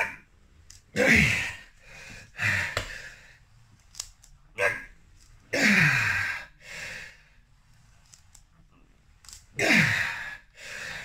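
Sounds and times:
man breathing hard: 1.0 - 3.4, 5.8 - 7.4, 9.6 - 11.0.

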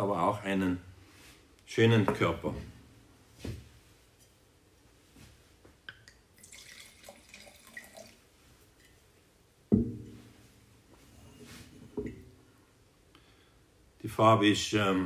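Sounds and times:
wine pouring into glass: 5.9 - 9.0
bottle thud on table: 9.7 - 10.2.

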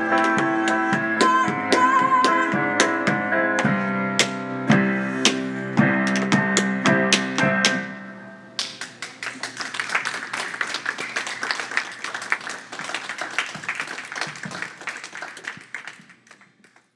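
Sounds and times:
audience clapping: 8.6 - 16.9.

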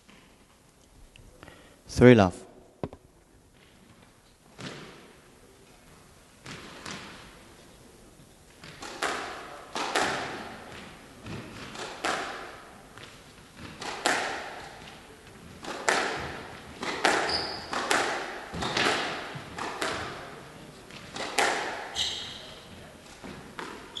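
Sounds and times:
squash ball hitting rackets and walls: 3.6 - 5.2, 6.4 - 7.4, 8.6 - 24.0
shoe squeak: 17.2 - 17.8, 21.9 - 22.7.

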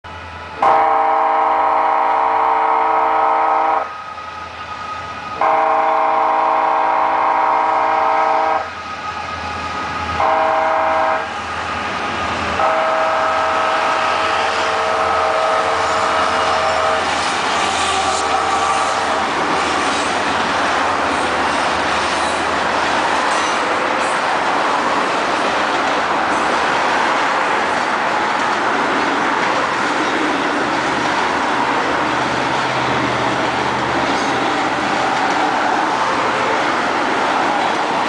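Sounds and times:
train rumbling through crossing: 0.0 - 38.0
locomotive air horn blasts: 0.6 - 4.1, 5.4 - 8.8, 10.2 - 11.4, 12.6 - 19.3.

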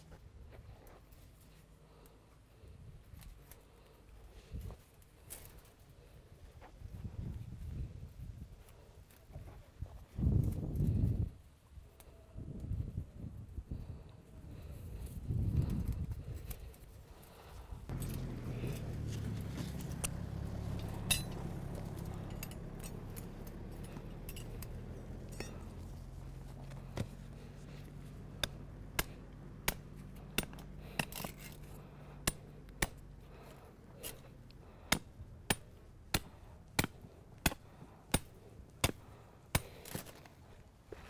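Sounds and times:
low engine hum: 13.8 - 41.0.

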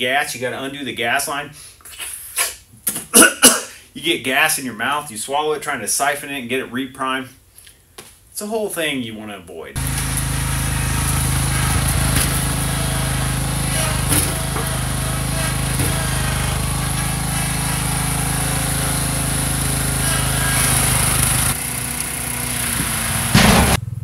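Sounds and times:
push mower engine running: 9.8 - 24.0
riding mower engine running: 9.8 - 24.0.

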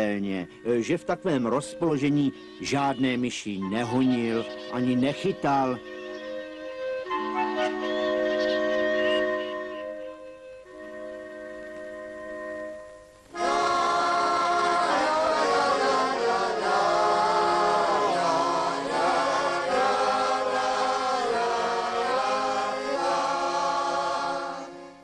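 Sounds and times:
people singing together: 13.4 - 25.0.

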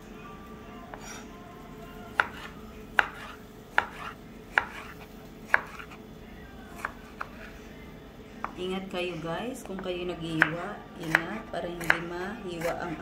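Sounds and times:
knife chopping on wooden board: 2.2 - 6.0, 10.4 - 12.0.

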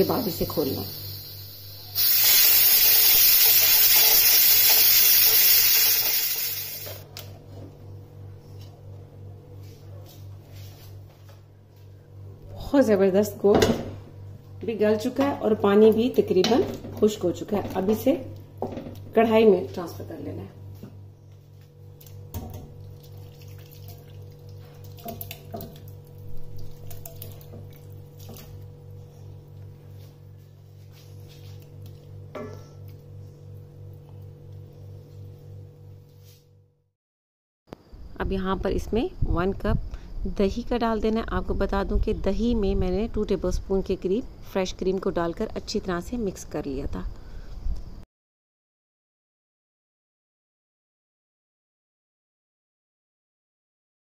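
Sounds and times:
steam hissing from valve: 0.1 - 7.0
liquid splashing into pot: 22.4 - 28.6.

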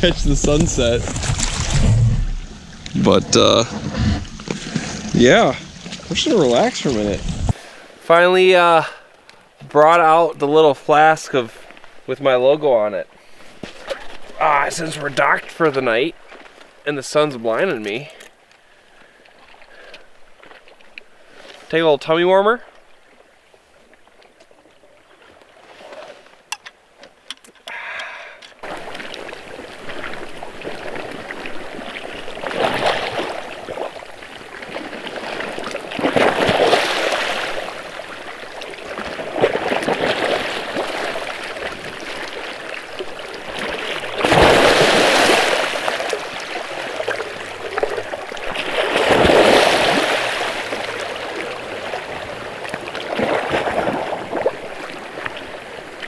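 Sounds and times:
water lapping against shore: 0.0 - 9.6, 22.5 - 56.0.

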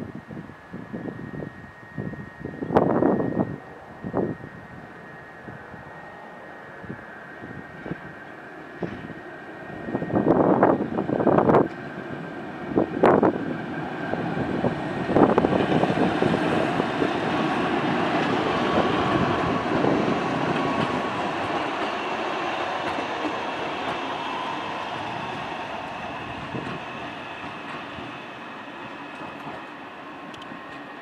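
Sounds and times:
tram wheels rolling on rails: 0.0 - 31.0
faint thin whine: 0.1 - 10.8.

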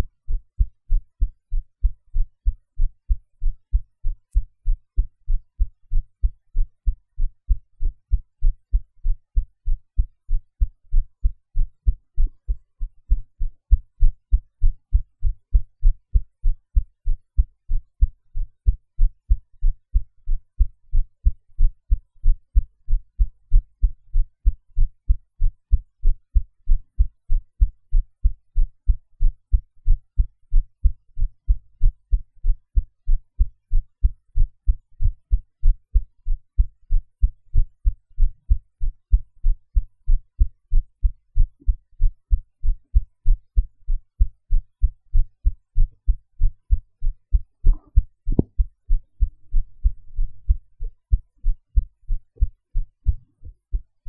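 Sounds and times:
heartbeat: 0.0 - 54.0.

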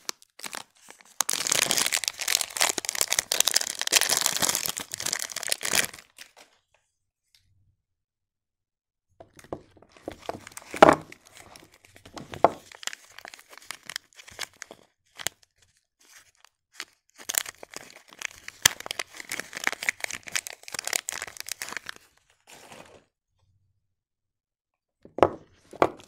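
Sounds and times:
foil wrapper crinkling and tearing: 0.0 - 6.4, 10.0 - 23.0.

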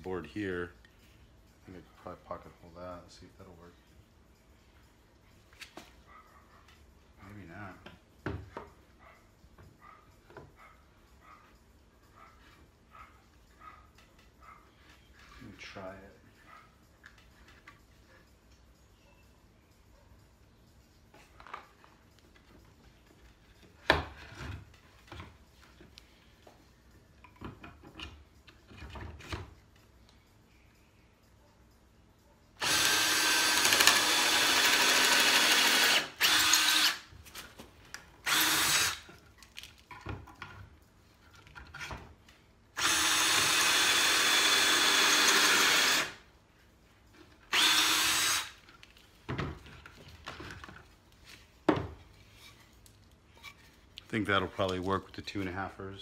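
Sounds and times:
cordless drill boring into wood: 32.6 - 37.1, 38.2 - 39.1, 42.8 - 46.2, 47.5 - 48.6.

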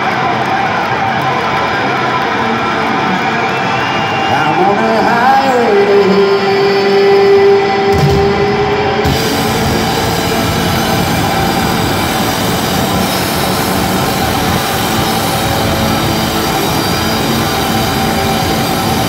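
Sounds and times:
crowd noise: 0.0 - 19.0
rock band playing: 5.5 - 19.0
amplified held guitar note: 7.9 - 19.0.

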